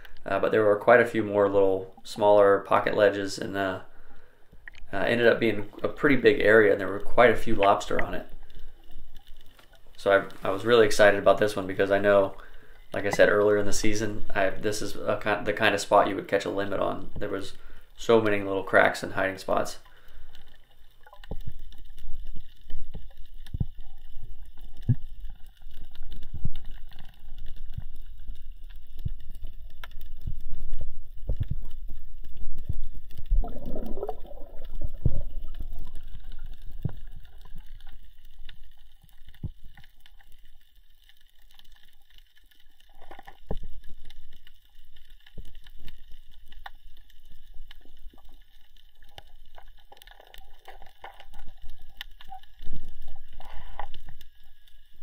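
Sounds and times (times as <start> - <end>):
low underwater rumble: 20.0 - 40.8.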